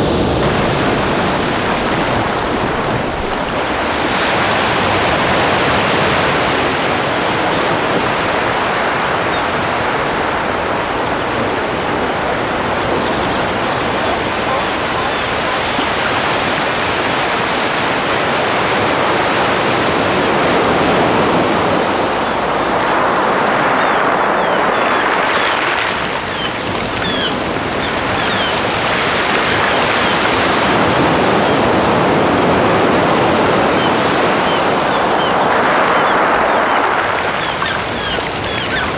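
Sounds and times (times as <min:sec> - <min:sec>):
waves rushing: 0:00.0 - 0:38.9.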